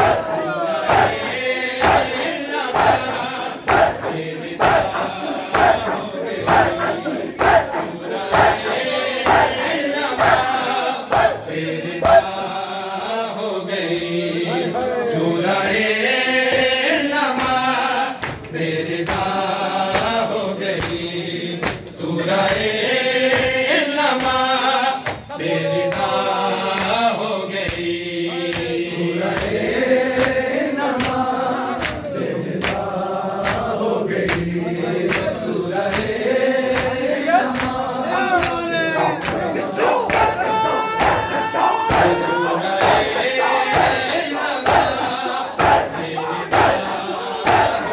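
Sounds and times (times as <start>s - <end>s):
chest beating slaps: 0.0s - 8.6s
men chanting a lament: 0.0s - 47.9s.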